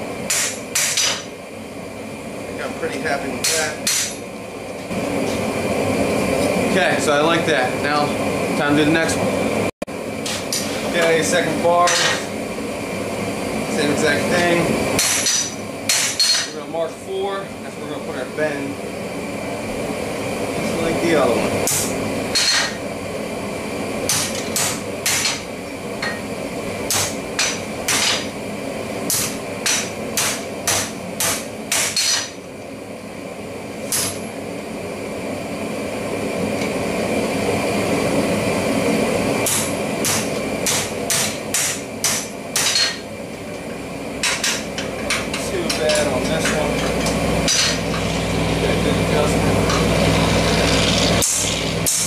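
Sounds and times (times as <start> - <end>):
hammer striking steel on anvil: 0.3 - 1.3, 3.4 - 4.2, 11.8 - 12.3, 15.0 - 16.6, 21.7 - 22.8, 24.1 - 25.4, 26.9 - 28.3, 29.1 - 32.4, 39.4 - 43.0, 44.2 - 48.2.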